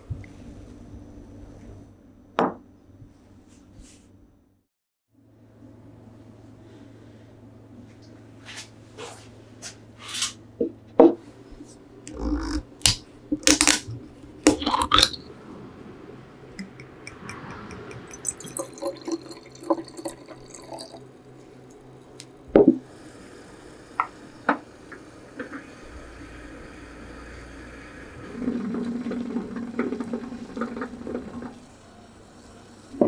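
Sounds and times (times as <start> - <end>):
liquid pouring and gurgling: 14.4 - 15.3, 16.6 - 22.2, 25.3 - 33.0.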